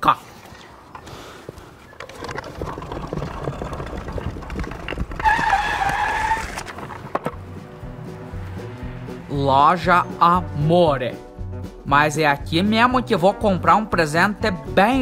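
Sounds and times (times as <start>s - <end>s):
wooden wheels rumbling over paving: 0.9s - 7.6s
high squeal: 5.2s - 6.7s.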